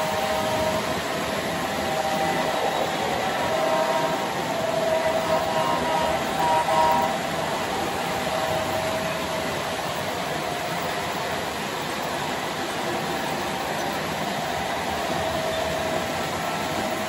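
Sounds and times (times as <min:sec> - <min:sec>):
faint steady whine: 0:00.0 - 0:17.0
model train wheels on track: 0:00.0 - 0:17.0.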